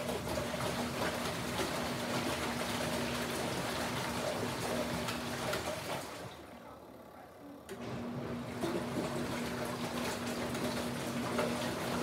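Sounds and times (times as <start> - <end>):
washing machine motor hum: 0.0 - 12.0.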